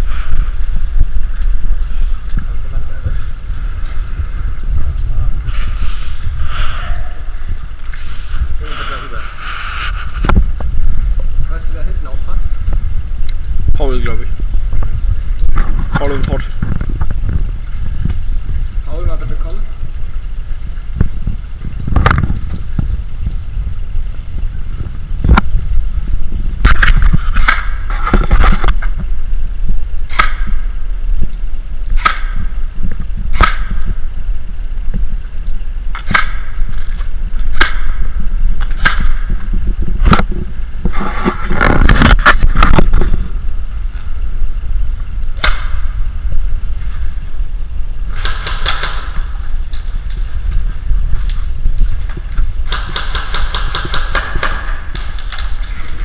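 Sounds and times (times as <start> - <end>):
steady low rumble: 0.0 - 56.0
airsoft rifles firing shots: 26.7 - 27.9, 30.1 - 30.6, 32.0 - 32.5, 33.3 - 33.9, 36.0 - 36.6, 37.5 - 38.1, 38.7 - 39.3, 45.4 - 45.9, 48.1 - 49.3, 52.6 - 55.6.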